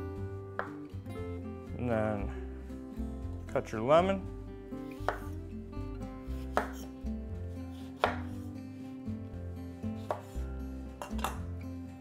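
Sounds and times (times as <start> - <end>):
knife hitting cutting board: 0.6 - 0.8, 6.5 - 6.9, 7.9 - 8.3, 10.0 - 10.4, 11.0 - 11.4.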